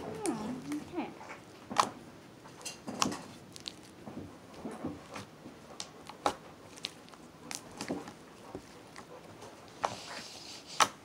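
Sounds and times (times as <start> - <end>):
slime squelching: 0.0 - 11.0.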